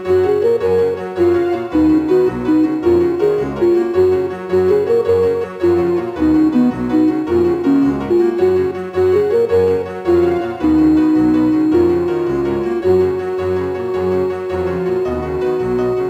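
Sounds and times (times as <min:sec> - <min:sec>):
keyboard melody: 0:00.0 - 0:16.0
pulsing bass line: 0:00.3 - 0:16.0.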